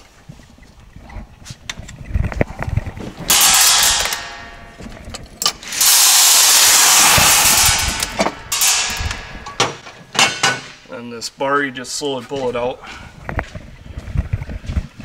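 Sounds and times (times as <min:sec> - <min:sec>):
metal parts clicking and clanking: 0:03.3 - 0:10.9
loud hissing bursts: 0:05.6 - 0:09.2.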